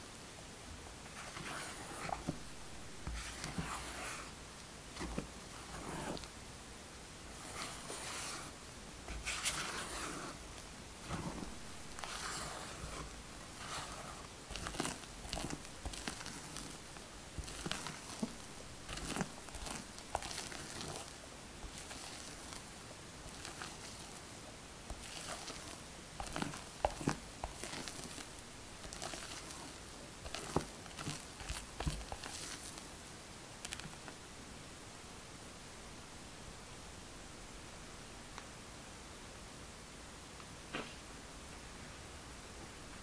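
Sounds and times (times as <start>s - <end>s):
spatula folding batter: 1.0s - 6.4s, 7.2s - 33.0s, 33.6s - 34.2s.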